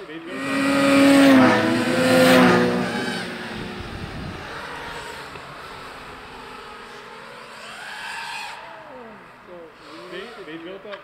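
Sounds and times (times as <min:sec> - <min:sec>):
passing motor hum: 0:00.3 - 0:06.6
rising whine: 0:00.5 - 0:05.4.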